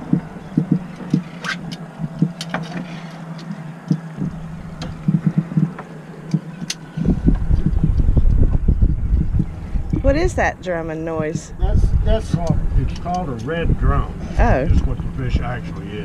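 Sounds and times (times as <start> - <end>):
fish drumming thumps: 0.0 - 1.3, 1.9 - 2.8, 3.8 - 8.6
sharp clicks: 0.0 - 8.4
steady low hum: 0.0 - 16.0.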